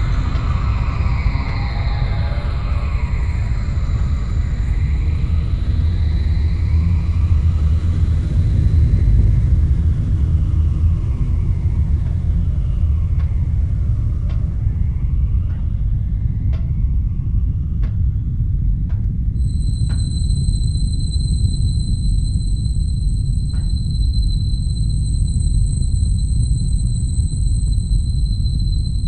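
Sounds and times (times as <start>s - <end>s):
industrial machine rumble: 0.0s - 29.0s.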